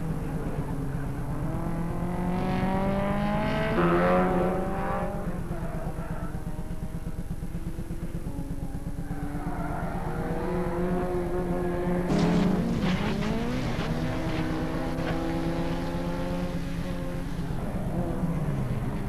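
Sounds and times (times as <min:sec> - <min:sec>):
race car engines revving: 0:00.0 - 0:19.0
crunching impacts of car rolling: 0:12.0 - 0:15.9.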